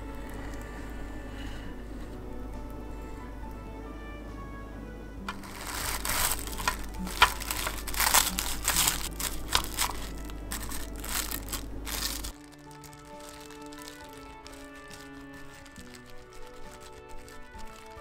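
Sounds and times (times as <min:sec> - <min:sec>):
plastic cling wrap crinkling: 0:05.3 - 0:18.0.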